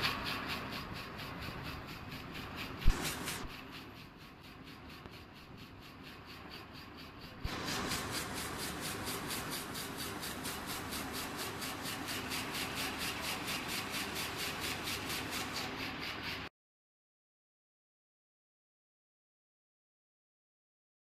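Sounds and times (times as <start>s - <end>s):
weaving loom running: 0.0s - 16.5s.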